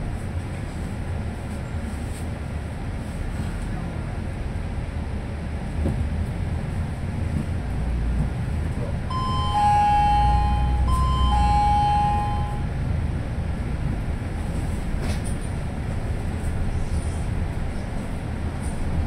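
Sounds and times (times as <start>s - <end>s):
bus engine and road rumble: 0.0s - 19.0s
two-tone ding-dong chime: 9.1s - 12.7s.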